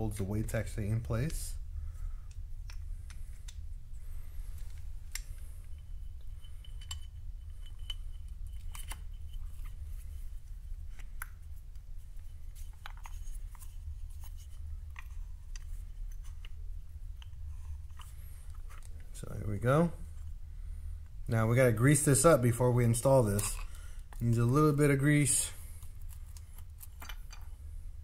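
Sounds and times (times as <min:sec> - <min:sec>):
steady low hum: 0:00.0 - 0:28.0
small tools clicking and tapping: 0:06.5 - 0:09.8.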